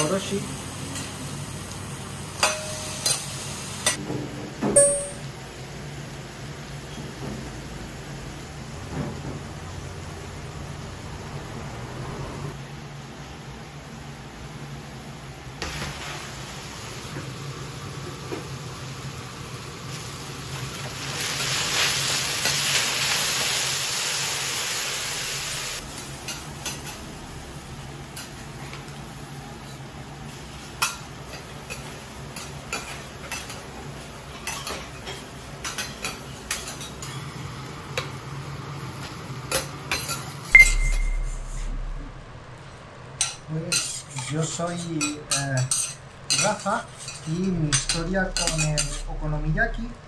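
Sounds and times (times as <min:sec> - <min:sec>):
noodles sizzling on griddle: 0:00.0 - 0:04.0, 0:15.4 - 0:40.6
metal spatulas scraping griddle: 0:43.2 - 0:49.1.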